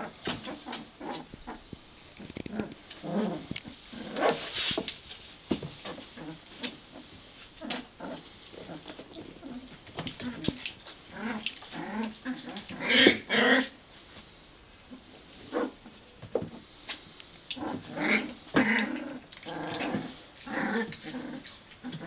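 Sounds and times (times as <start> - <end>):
puppies growling and yipping: 0.0 - 4.6, 5.8 - 13.8, 17.5 - 22.0.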